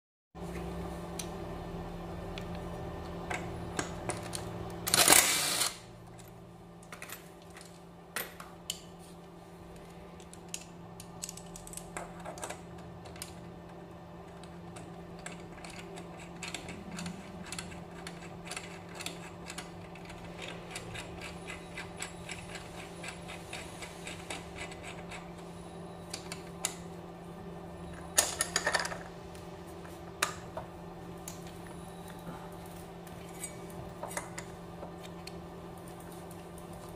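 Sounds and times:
steady low hum: 0.4 - 36.9.

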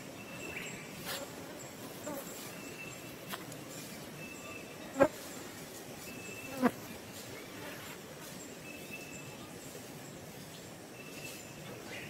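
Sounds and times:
insects buzzing: 0.0 - 8.6
steady background hiss: 0.0 - 12.0.

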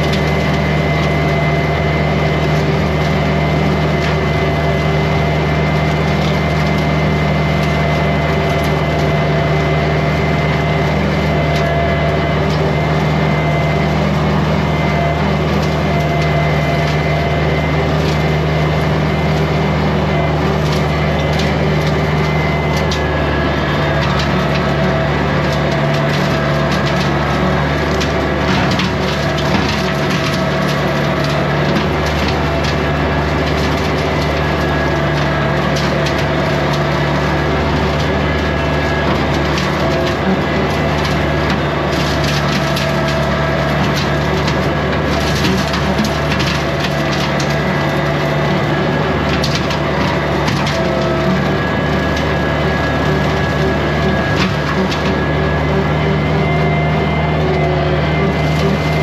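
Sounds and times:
diesel tractor running: 0.0 - 59.0
brush snapping and cracking: 20.2 - 55.6.

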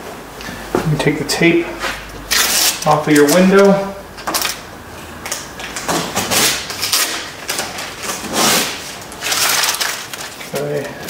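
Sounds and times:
adhesive tape ripping off glass: 2.3 - 4.6, 5.2 - 10.8.

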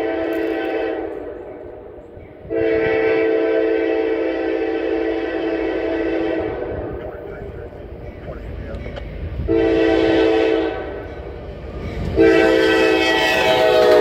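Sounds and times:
locomotive air horn blasts: 0.0 - 1.4, 2.4 - 7.0, 9.5 - 11.0, 12.2 - 14.0.

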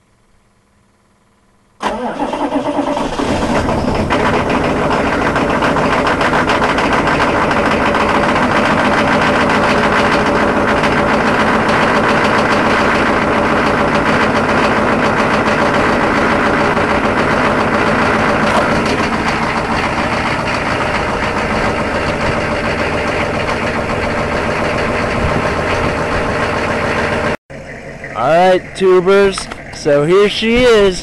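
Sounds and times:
diesel engine clattering: 1.8 - 31.0
diesel engine starting: 1.8 - 31.0.

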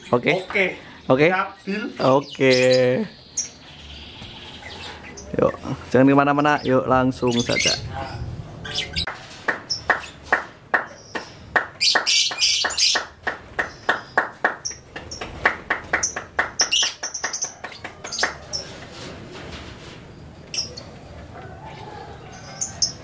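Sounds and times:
high bird chatter: 0.0 - 18.9, 20.2 - 23.0
lovebirds chirping: 0.0 - 19.0, 20.0 - 23.0.

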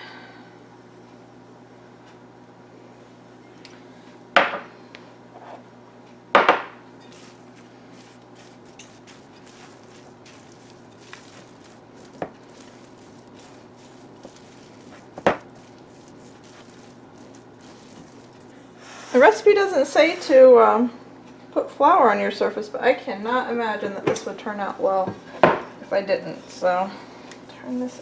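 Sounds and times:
spatula scraping bowl: 7.0 - 20.2.

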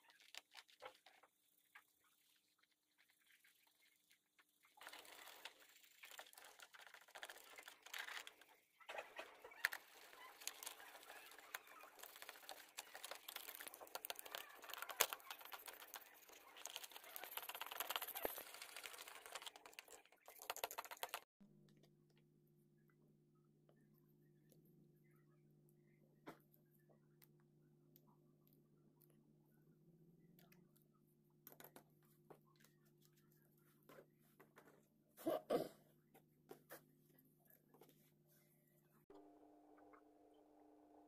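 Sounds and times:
toothbrush scrubbing in liquid: 0.1 - 21.3.

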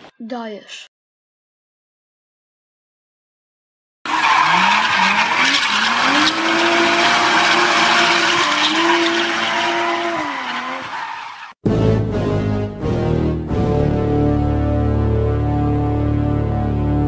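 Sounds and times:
car engine revving: 4.1 - 11.6
tyres screeching: 4.1 - 11.6.

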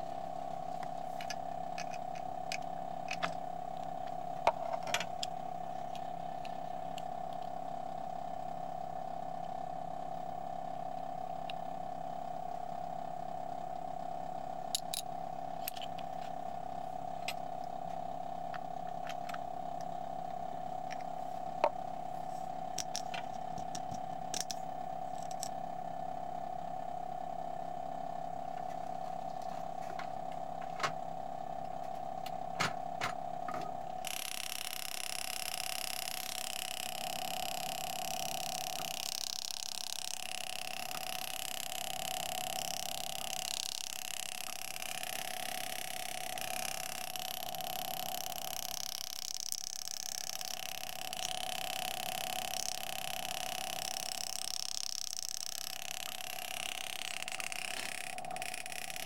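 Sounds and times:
machine hum: 0.0 - 59.0
sharp small clicks: 0.8 - 3.9, 14.7 - 16.1, 22.8 - 25.6, 34.0 - 59.0.

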